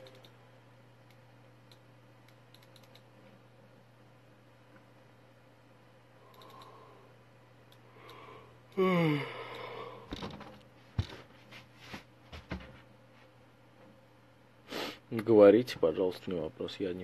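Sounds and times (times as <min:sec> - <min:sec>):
man sighing: 0:08.1 - 0:10.1.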